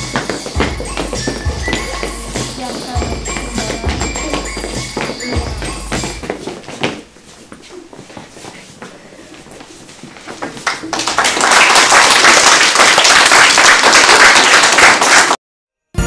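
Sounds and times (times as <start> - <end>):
audience clapping: 10.4 - 15.4.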